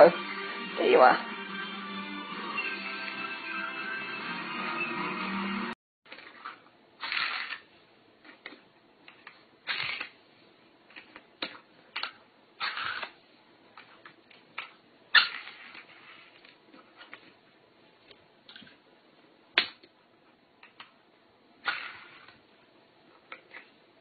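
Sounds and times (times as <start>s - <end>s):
music: 0.0s - 5.8s.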